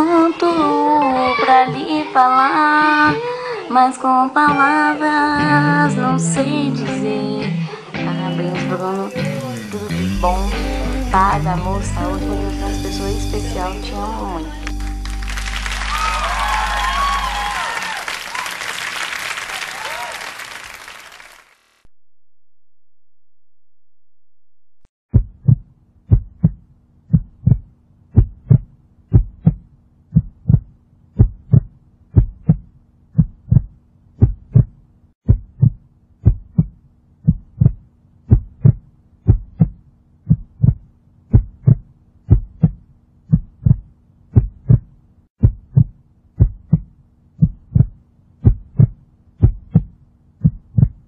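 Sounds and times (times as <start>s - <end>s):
heartbeat thumps: 25.1s - 51.0s.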